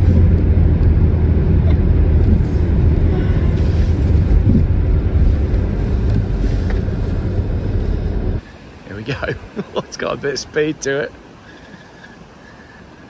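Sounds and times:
wind buffeting microphone: 0.0s - 8.4s
car engine rumbling: 0.0s - 13.0s
water rushing and spraying: 2.1s - 13.0s.

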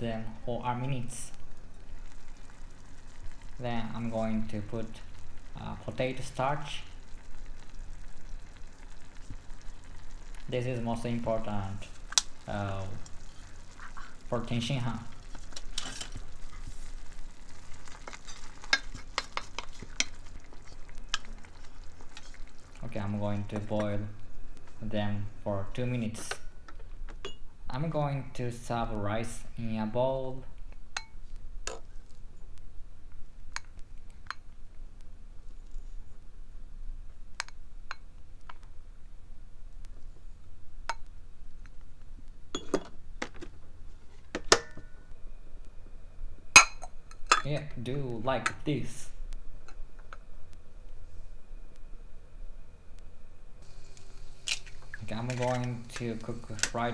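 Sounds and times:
wooden spatula stirring in saucepan: 13.0s - 14.3s, 15.1s - 22.6s.

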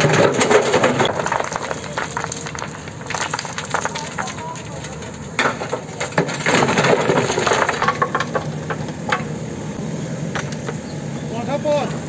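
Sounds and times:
stones clattering into metal truck bed: 0.0s - 9.3s
diesel engine hum: 0.0s - 12.0s.

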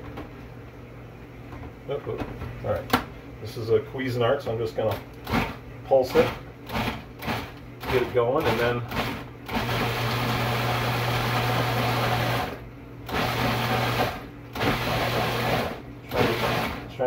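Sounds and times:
food processor motor pulsing: 5.2s - 17.0s.

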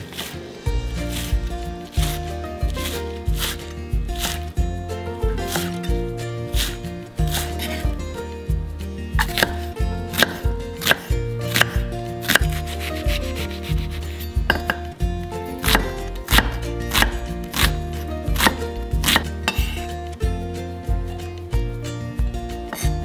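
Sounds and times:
soft background music: 0.0s - 23.0s
knife chopping on cutting board: 2.0s - 3.6s, 4.2s - 4.4s, 5.4s - 5.8s, 6.5s - 7.9s, 9.2s - 14.9s, 15.6s - 17.8s, 18.4s - 19.8s.

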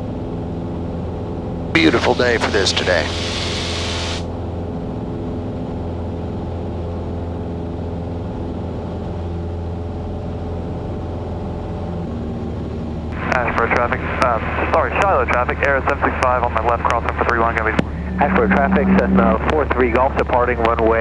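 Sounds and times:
aircraft engine droning: 0.0s - 21.0s
hiss: 3.0s - 4.2s.

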